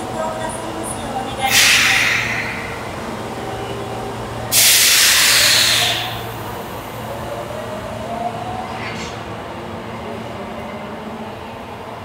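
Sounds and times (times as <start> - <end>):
train rising whine: 1.4 - 11.7
compressed air hissing: 1.5 - 3.0, 4.5 - 6.2.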